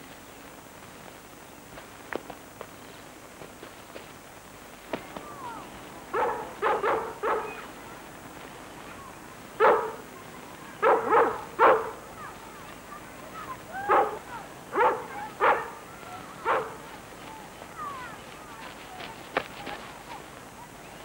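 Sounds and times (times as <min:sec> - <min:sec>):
dog barking: 0:06.1 - 0:07.7, 0:09.6 - 0:10.0, 0:10.8 - 0:12.0, 0:13.8 - 0:15.8, 0:16.4 - 0:16.9.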